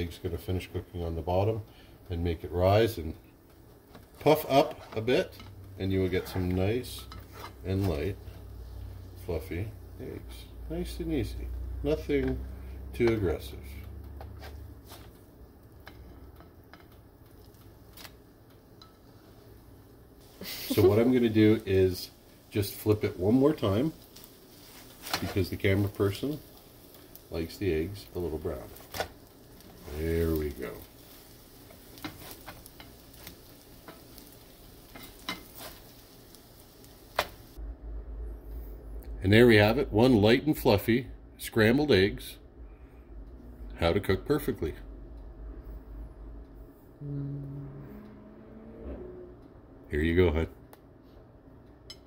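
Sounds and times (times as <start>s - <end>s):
eggs sizzling in frying pan: 0.0s - 37.6s
low steady hum: 0.0s - 52.0s
spatula scraping and tapping pan: 3.9s - 8.6s, 31.1s - 36.0s.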